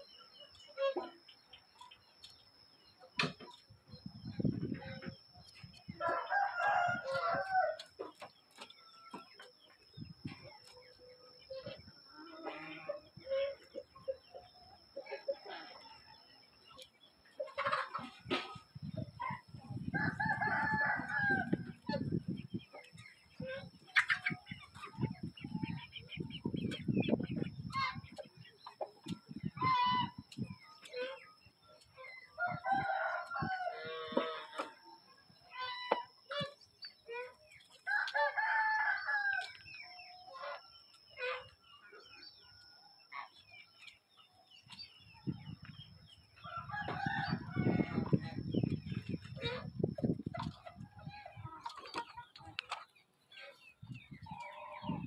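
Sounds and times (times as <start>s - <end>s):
rooster crowing: 6.0s - 7.9s, 19.9s - 21.8s, 32.4s - 34.6s, 37.9s - 39.6s, 46.4s - 48.2s.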